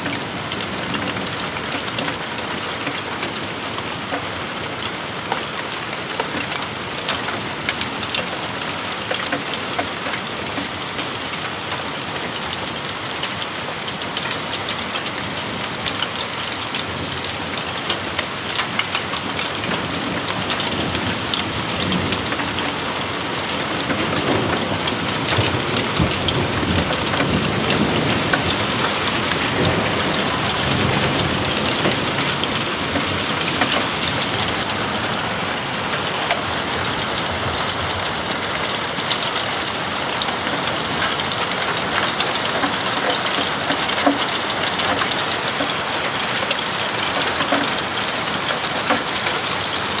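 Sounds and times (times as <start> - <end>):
steady rain falling: 0.0 - 50.0
thunder rumbling: 23.7 - 42.0.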